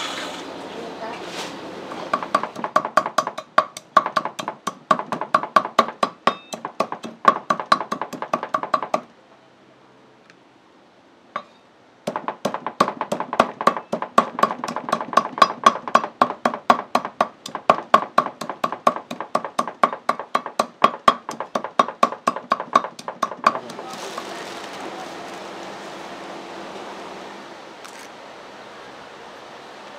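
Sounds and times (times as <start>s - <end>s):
steady hiss: 0.0s - 1.9s, 23.4s - 29.9s
rapid chopping on cutting board: 2.2s - 9.0s, 12.1s - 24.0s.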